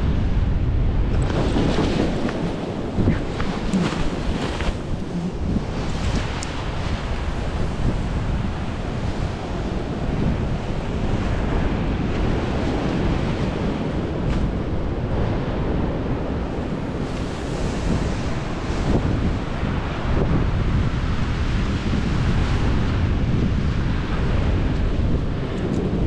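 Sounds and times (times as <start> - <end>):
wind buffeting microphone: 0.0 - 26.0
surf breaking on beach: 1.0 - 26.0.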